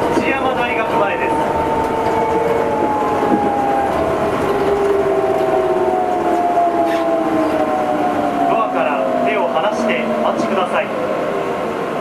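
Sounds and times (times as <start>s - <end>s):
train running rumble: 0.0s - 12.0s
traction motor whine: 0.9s - 9.3s.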